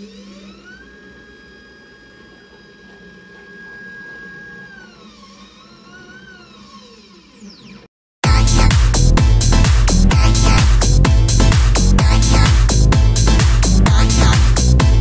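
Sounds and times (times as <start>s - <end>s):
router whine: 0.0s - 7.9s
machine low hum: 0.0s - 15.0s.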